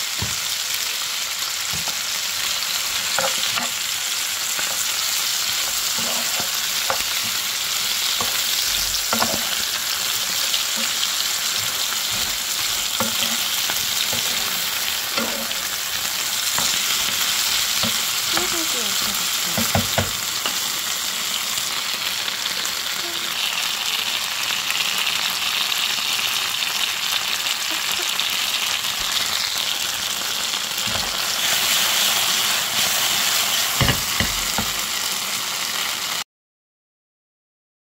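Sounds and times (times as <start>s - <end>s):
food sizzling in a frying pan: 0.0s - 36.2s
knocks in the pan: 19.6s - 20.2s, 33.8s - 34.8s.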